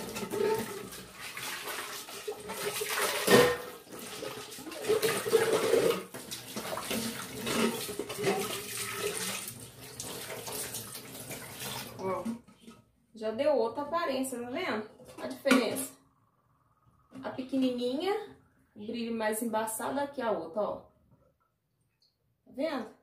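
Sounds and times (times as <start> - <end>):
tap water running into sink: 0.0 - 12.0
pot scrubbing and clattering: 0.0 - 12.8.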